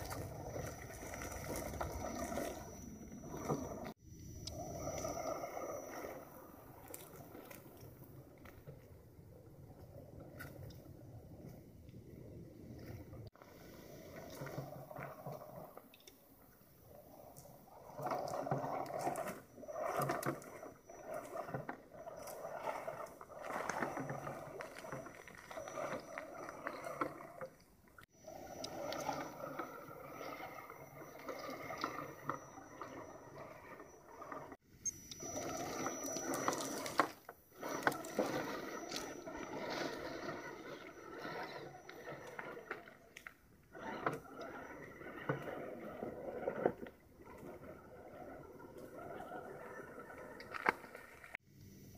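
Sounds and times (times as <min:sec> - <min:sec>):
toy car electric motor whining: 0:28.3 - 0:46.5.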